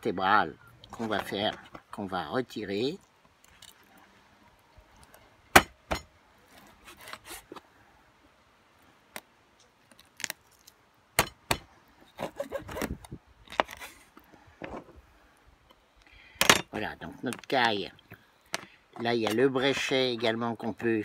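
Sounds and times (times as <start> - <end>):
knife scraping: 6.6 - 7.6.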